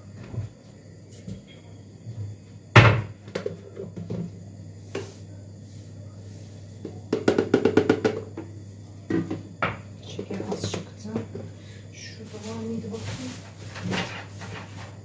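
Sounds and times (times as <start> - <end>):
things knocked onto counter: 2.8 - 4.2.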